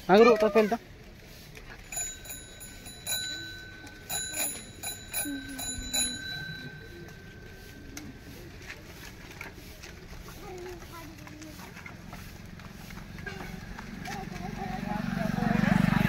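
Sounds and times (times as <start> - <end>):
bicycle bell dinging: 1.8 - 8.8.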